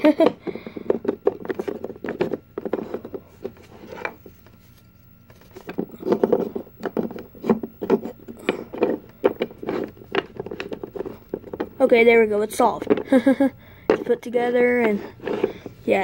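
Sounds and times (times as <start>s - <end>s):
wooden puzzle pieces clacking: 5.3s - 11.8s.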